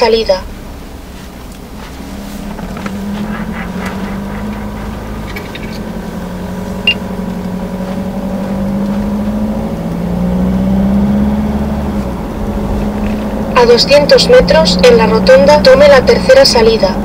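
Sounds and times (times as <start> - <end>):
car engine hum: 0.0 - 17.0
road rumble: 0.0 - 17.0.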